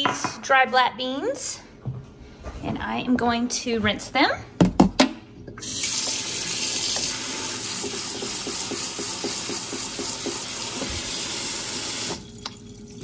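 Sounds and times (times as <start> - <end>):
tap water running onto beans: 5.6 - 13.0.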